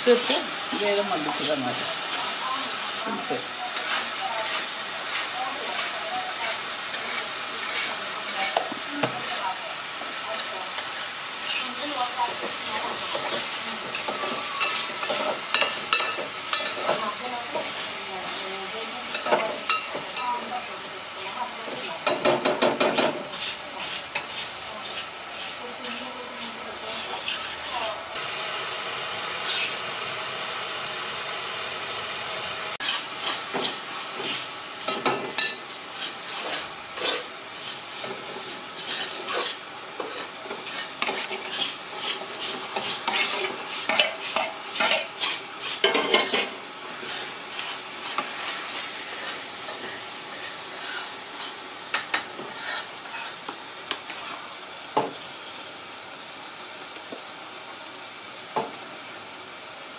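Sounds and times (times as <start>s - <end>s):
onions sizzling in a pot: 0.0s - 59.9s
spoon scraping a metal plate: 26.9s - 27.9s, 32.8s - 53.4s.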